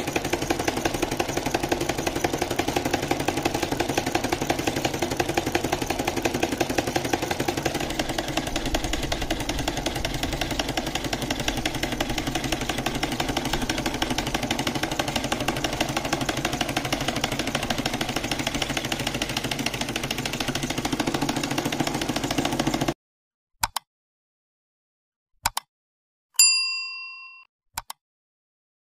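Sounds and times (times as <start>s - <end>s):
solenoid engine clattering: 0.0s - 23.0s
brief click: 27.8s - 28.0s.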